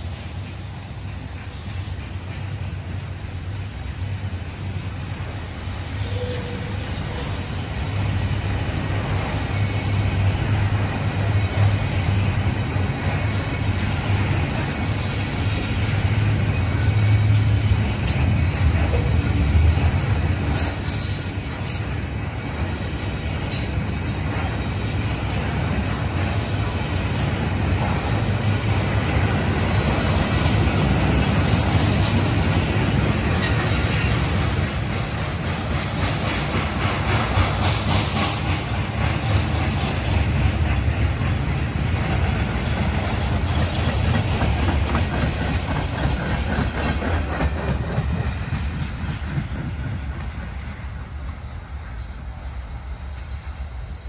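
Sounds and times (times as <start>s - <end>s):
rail cars clacking and clanking: 0.0s - 54.0s
train wheels rumbling: 0.0s - 54.0s
high wheel squeal: 4.8s - 7.6s, 9.0s - 32.5s, 33.4s - 44.6s.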